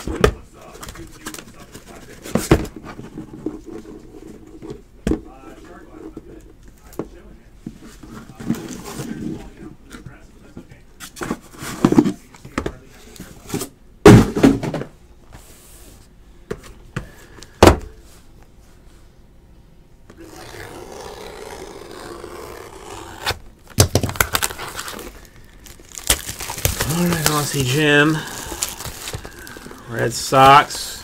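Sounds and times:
box thunks on table: 14.1s - 14.9s
plastic wrapping crinkling: 21.9s - 30.6s.

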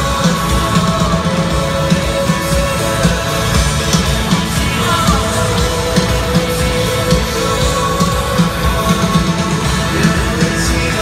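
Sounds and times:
rock-pop band music over speakers: 0.0s - 11.0s.

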